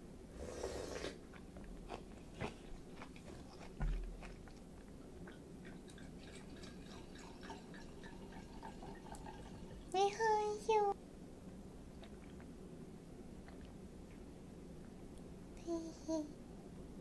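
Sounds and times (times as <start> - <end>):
slurping broth from spoon: 0.4 - 1.2
wet chewing clicks: 1.3 - 6.4, 12.0 - 12.5, 13.4 - 14.2.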